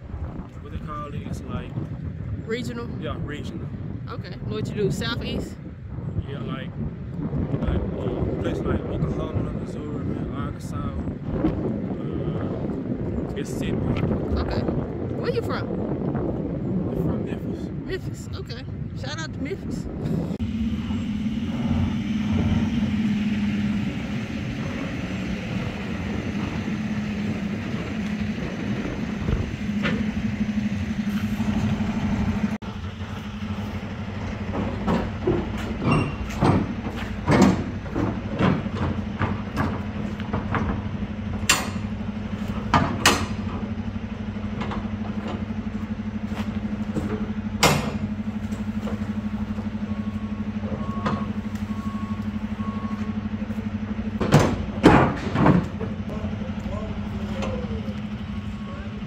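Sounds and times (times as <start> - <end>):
truck engine idling: 18.4 - 59.0.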